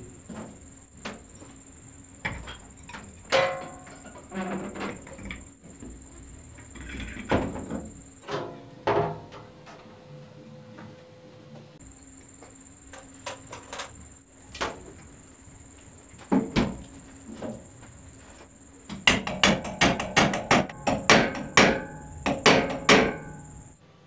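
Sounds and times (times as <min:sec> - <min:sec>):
knocks on metal motor housing: 0:19.0 - 0:23.6.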